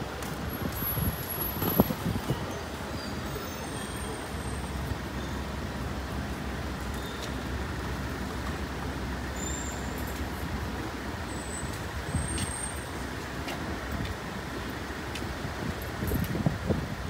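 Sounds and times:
city traffic rumble: 0.0s - 17.0s.

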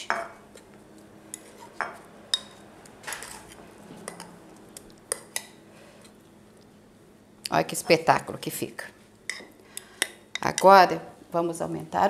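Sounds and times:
soft wet stirring: 0.5s - 6.8s.

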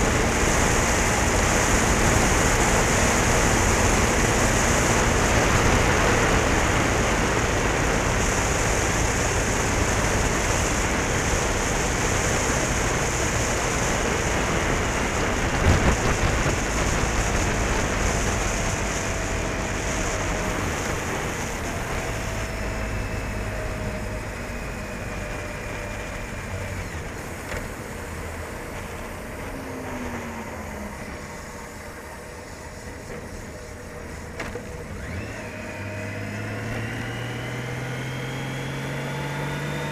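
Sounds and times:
wind rushing over microphone: 0.0s - 33.5s
motorcycle engine running: 0.0s - 39.9s
road noise: 0.0s - 39.9s.

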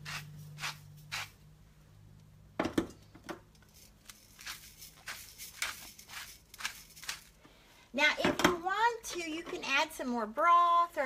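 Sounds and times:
salt and pepper grinder rasping: 0.0s - 1.4s, 3.7s - 7.4s.

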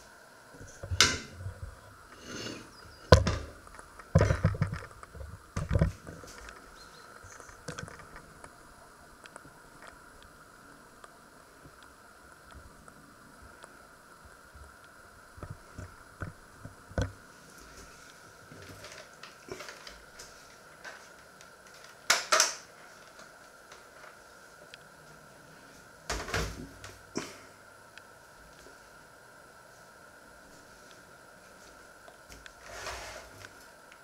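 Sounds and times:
faint steady hum: 0.0s - 34.0s
small ticks: 9.2s - 10.3s.

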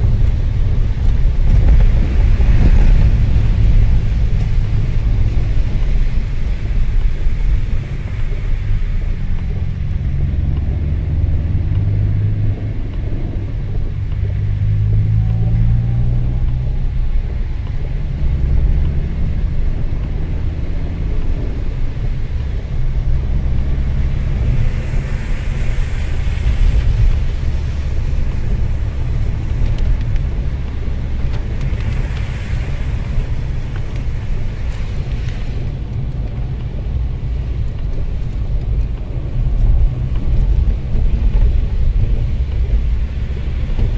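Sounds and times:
car engine and tyre rumble: 0.0s - 43.9s
tyres hissing on wet road: 0.0s - 43.9s.

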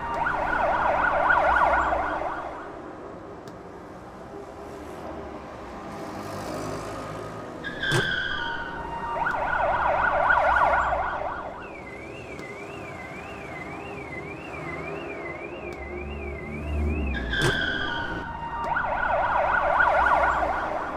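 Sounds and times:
fast yelping siren: 0.0s - 2.7s, 7.7s - 20.9s
slow warbling siren: 0.0s - 2.8s, 7.6s - 20.9s
city traffic rumble: 0.0s - 20.9s.

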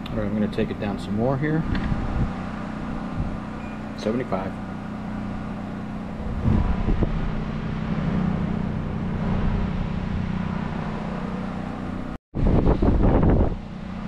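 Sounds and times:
air conditioner fan and compressor hum: 0.0s - 14.0s
loud low rumble: 5.9s - 11.8s.

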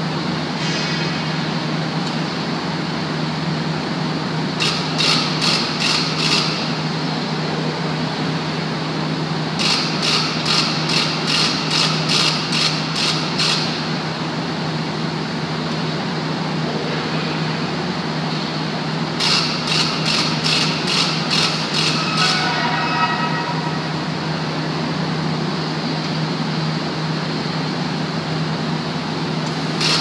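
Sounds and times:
machinery drone and hum: 0.0s - 30.0s.

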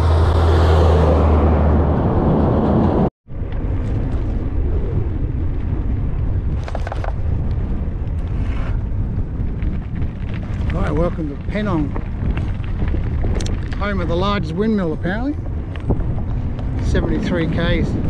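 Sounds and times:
loud tyre roar: 0.0s - 3.1s
truck engine drone: 0.0s - 3.8s
bicycle tyres rumbling on road: 0.0s - 18.0s
wind rushing over microphone: 0.0s - 18.0s.

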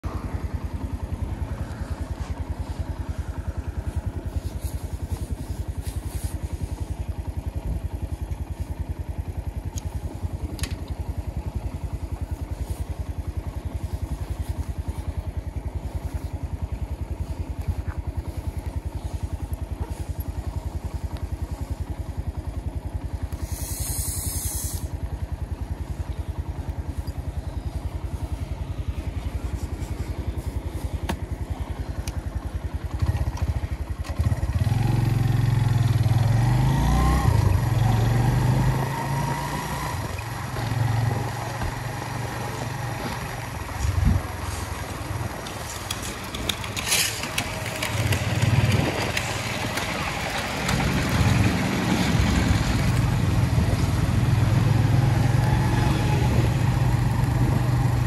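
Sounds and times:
motorcycle engine running: 0.0s - 58.0s
brief hiss: 23.4s - 24.9s.

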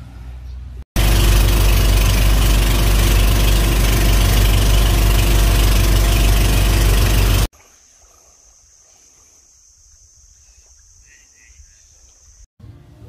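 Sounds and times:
engine running steadily: 1.0s - 7.5s.

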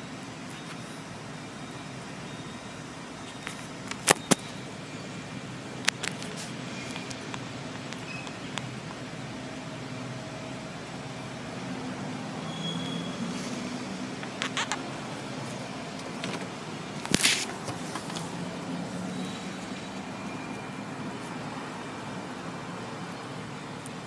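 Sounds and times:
road noise: 0.0s - 24.0s
car engine idling: 13.7s - 24.0s.

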